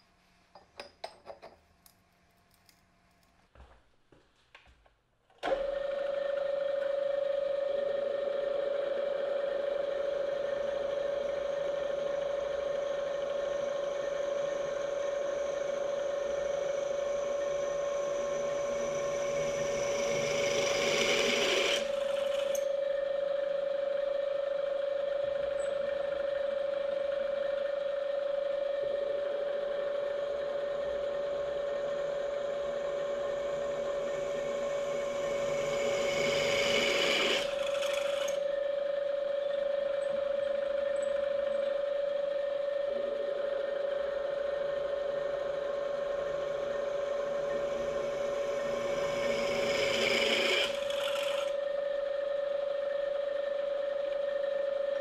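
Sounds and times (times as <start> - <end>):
drill press motor hum: 5.4 - 55.0
drill cutting metal: 17.3 - 22.8, 34.0 - 38.4, 46.7 - 51.6.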